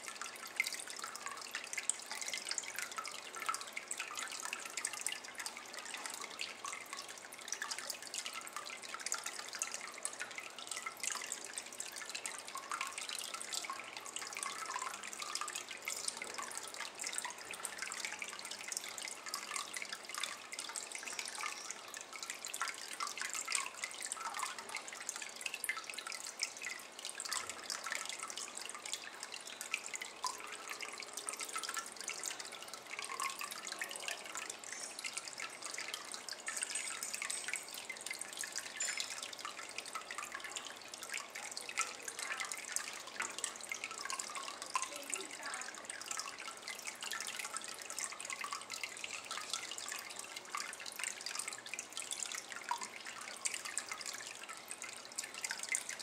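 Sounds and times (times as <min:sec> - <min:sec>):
water trickling into a basin: 0:00.0 - 0:56.0.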